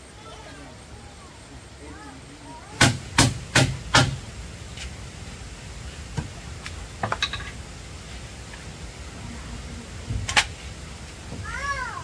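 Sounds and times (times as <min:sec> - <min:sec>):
hammer striking wood: 0:02.8 - 0:04.2.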